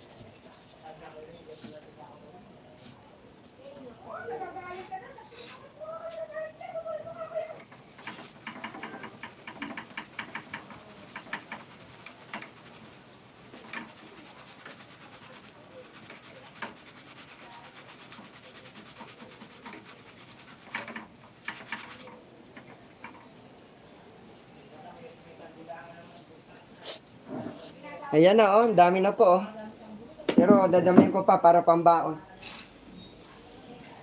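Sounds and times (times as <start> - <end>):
rice popping in hot oil: 7.6 - 25.9.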